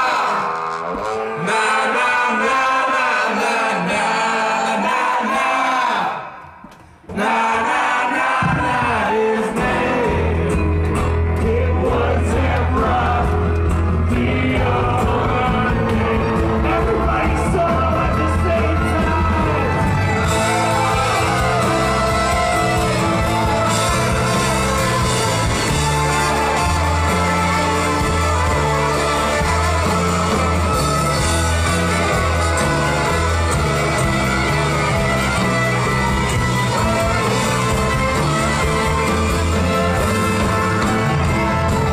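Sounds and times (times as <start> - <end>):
live band with singing: 0.0 - 41.9
bass line: 9.6 - 41.9.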